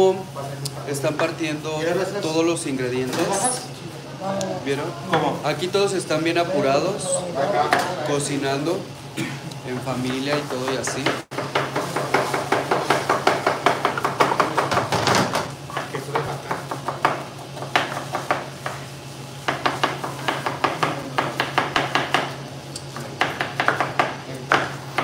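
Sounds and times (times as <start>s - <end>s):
knives chopping on cutting boards: 10.0s - 18.8s, 19.4s - 25.0s.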